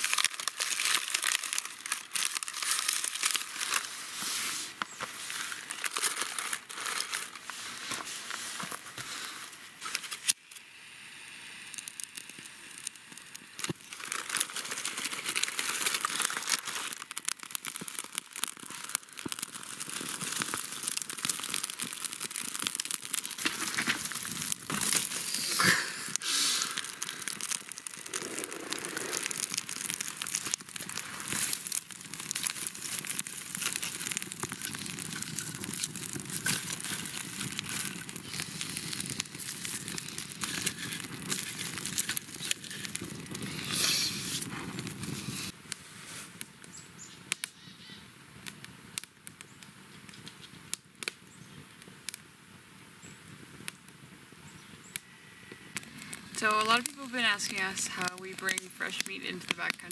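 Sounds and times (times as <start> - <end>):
packaging crinkling and rustling: 0.0 - 10.6, 11.8 - 45.6.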